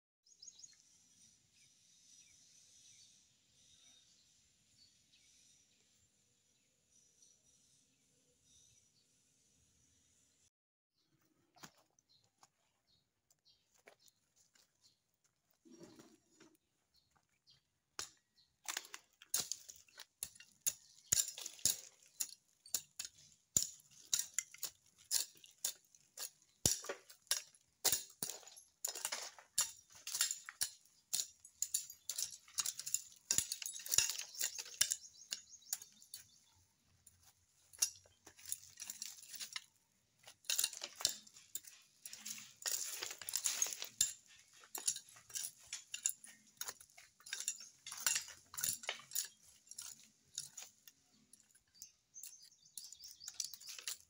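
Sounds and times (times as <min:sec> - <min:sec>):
machete scraping stony soil: 0:37.6 - 0:50.9.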